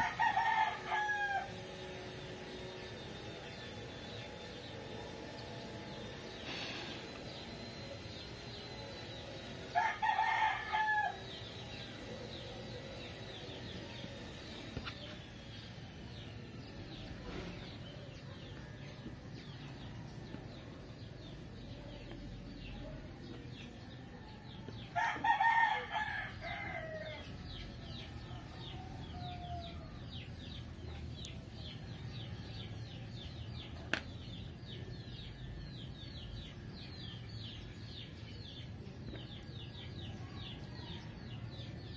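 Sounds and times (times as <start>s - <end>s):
rooster crowing: 0.0s - 1.8s, 9.7s - 11.4s, 24.8s - 27.3s, 28.2s - 30.0s.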